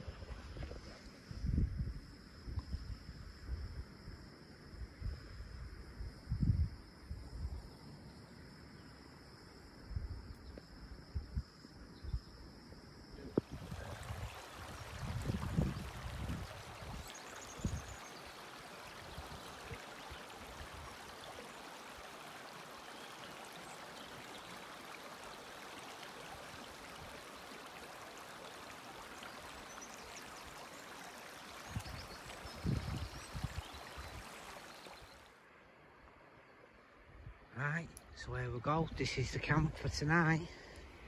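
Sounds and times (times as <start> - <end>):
river flowing over rocks: 13.5 - 32.5.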